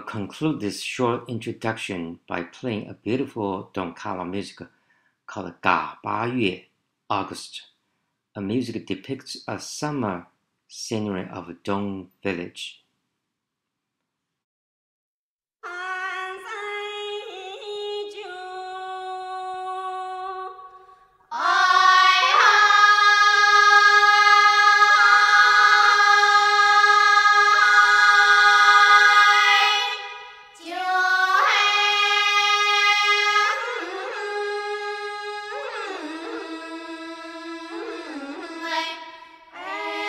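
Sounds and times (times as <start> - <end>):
women's chorus singing a cappella: 15.7 - 40.0.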